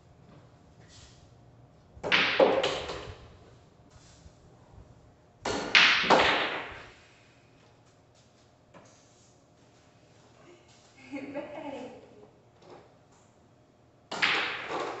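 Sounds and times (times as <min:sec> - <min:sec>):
pool balls clacking: 0:02.0 - 0:03.4, 0:05.4 - 0:06.9, 0:14.1 - 0:15.0.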